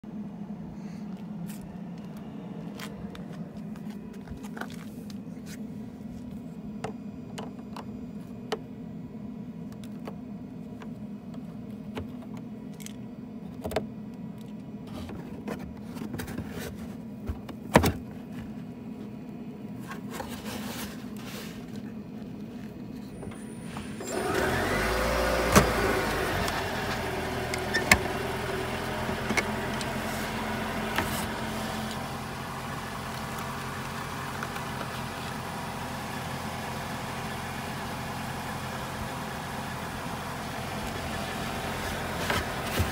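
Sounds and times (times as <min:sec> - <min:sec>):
steady low hum: 0:00.0 - 0:24.1.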